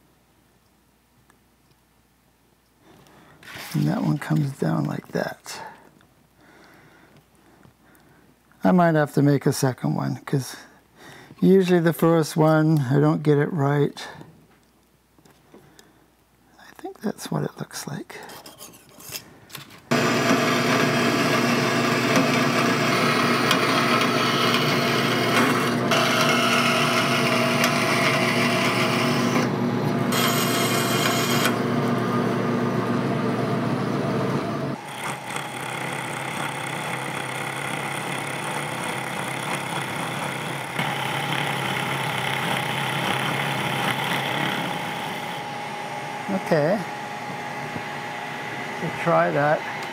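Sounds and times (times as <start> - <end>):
band saw cutting steel: 19.9 - 32.0, 34.6 - 46.8
milling machine cutting metal: 19.9 - 46.5.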